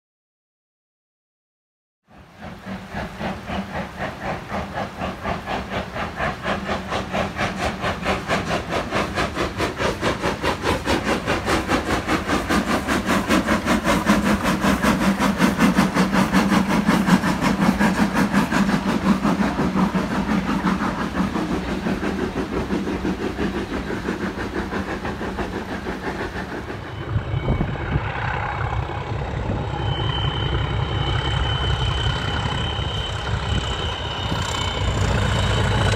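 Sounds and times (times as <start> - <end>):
steam locomotive exhaust beats: 2.0 - 35.9
diesel locomotive engine running: 2.1 - 35.9
thin high tone: 26.8 - 35.9.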